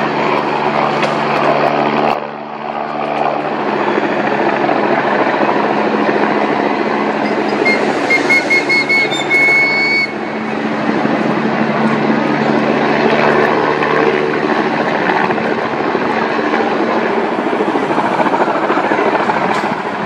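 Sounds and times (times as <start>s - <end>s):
helicopter rotor and turbine: 0.0s - 20.0s
high tone repeating: 7.2s - 10.4s.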